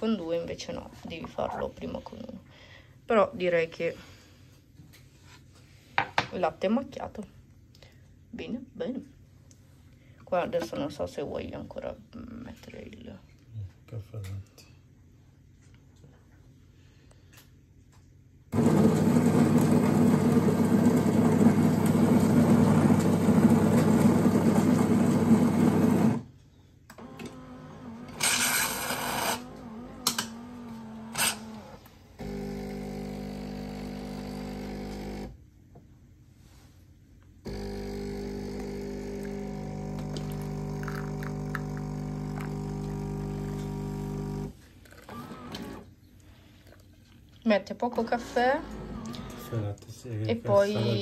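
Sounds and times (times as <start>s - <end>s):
coffee grinder running: 18.6s - 26.2s, 26.9s - 35.4s, 37.5s - 45.8s
pump humming: 26.9s - 35.4s, 37.5s - 45.8s.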